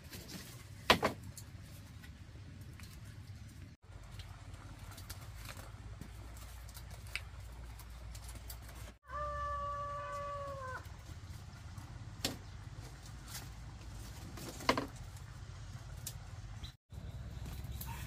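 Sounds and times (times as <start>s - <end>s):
rooster crowing: 9.0s - 10.8s.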